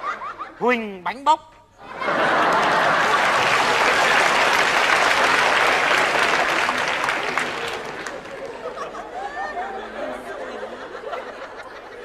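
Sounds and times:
studio audience applauding: 2.4s - 8.9s.

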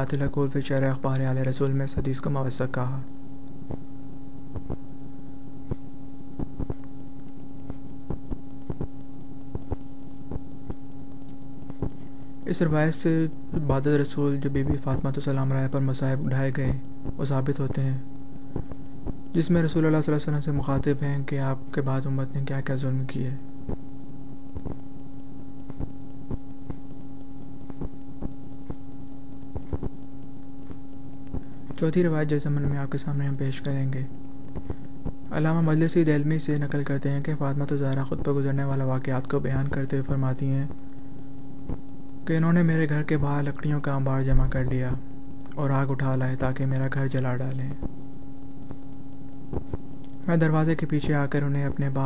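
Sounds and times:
steady hum: 0.0s - 52.0s
sharp clicks and pops: 4.5s - 4.8s, 5.6s - 12.1s, 24.5s - 24.9s, 25.6s - 31.9s, 34.2s - 35.3s, 46.7s - 50.6s.

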